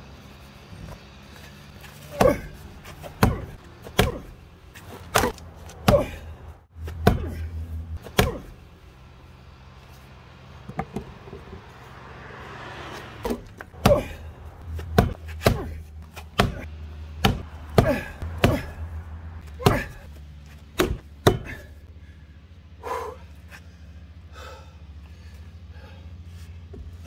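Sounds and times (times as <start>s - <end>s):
excavator diesel engine idling: 21.3s - 27.0s.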